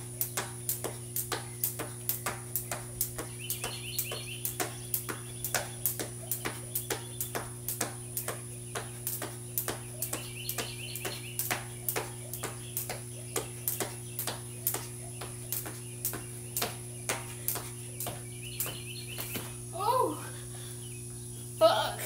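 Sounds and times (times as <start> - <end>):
cord slapping concrete: 0.0 - 19.6
steady low hum: 0.0 - 22.0
shoes landing: 3.1 - 19.6.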